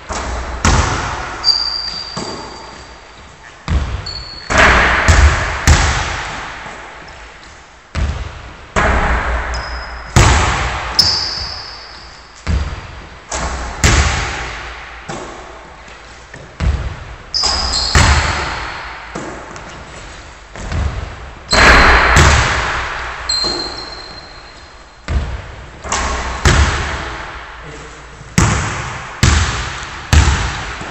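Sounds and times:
basketballs bouncing on wooden floor: 0.1s - 3.0s, 3.6s - 27.4s, 28.2s - 30.9s
sneaker squeaks: 1.3s - 4.6s, 9.5s - 10.2s, 10.9s - 12.9s, 17.3s - 20.8s, 23.2s - 25.2s.

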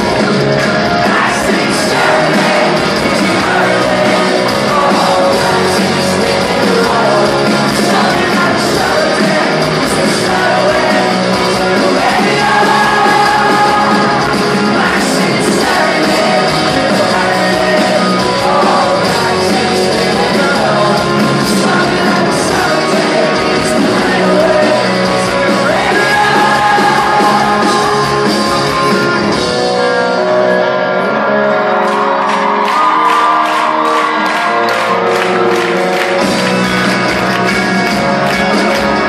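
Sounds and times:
rock band playing live: 0.0s - 39.0s
person singing: 0.8s - 31.2s.

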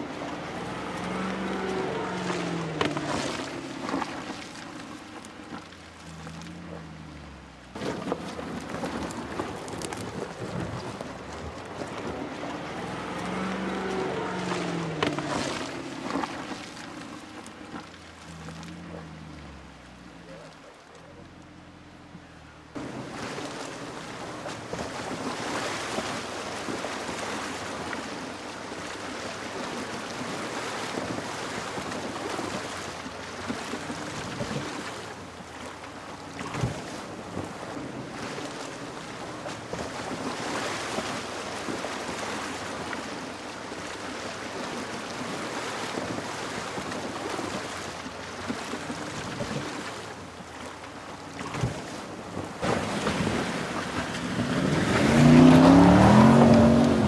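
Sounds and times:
car engine running at low revs: 0.0s - 43.1s, 45.2s - 57.0s
stream rushing and splashing: 0.0s - 57.0s.

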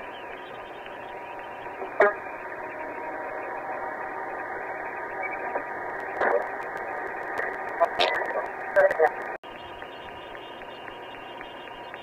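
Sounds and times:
muffled radio static hiss: 0.0s - 12.0s
loud radio burst: 1.5s - 9.4s
faint radio chatter: 7.2s - 9.4s.

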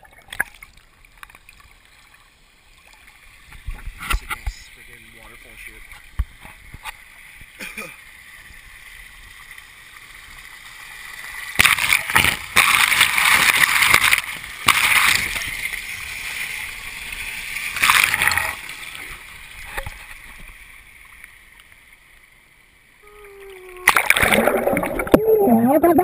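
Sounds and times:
waterfall pouring and splashing: 2.7s - 20.8s.

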